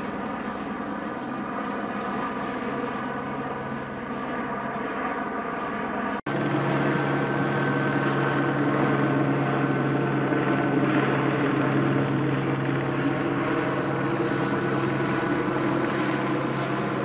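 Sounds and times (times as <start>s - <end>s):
engine drone: 5.7s - 17.0s.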